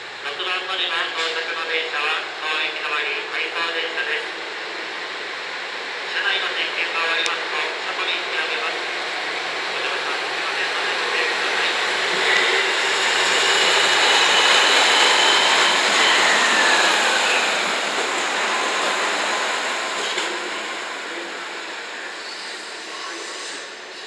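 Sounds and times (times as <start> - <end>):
diesel train engine: 0.0 - 24.0
train wheels on rails: 8.5 - 24.0.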